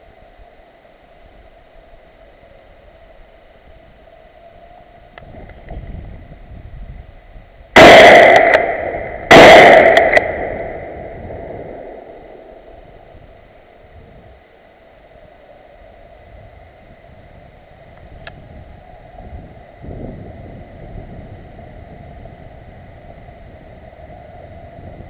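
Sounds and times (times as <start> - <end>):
loud gunshots echoing: 7.8 - 12.7.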